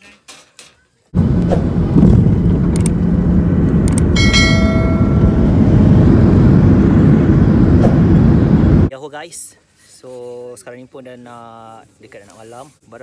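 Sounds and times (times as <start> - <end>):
jet engine cabin rumble: 1.2 - 8.9
chime: 4.2 - 5.5.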